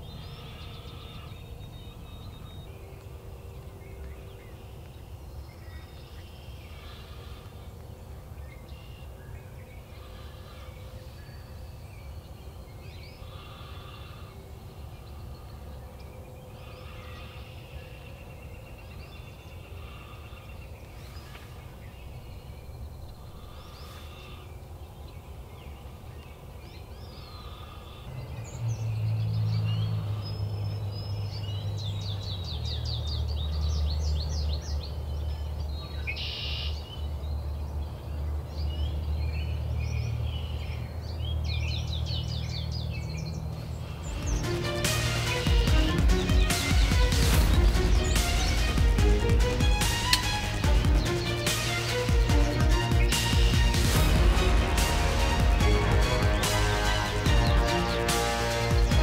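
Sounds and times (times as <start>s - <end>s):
bird calls: 0.0s - 54.0s
loud low hum: 43.7s - 59.0s
low rumble: 43.7s - 59.0s.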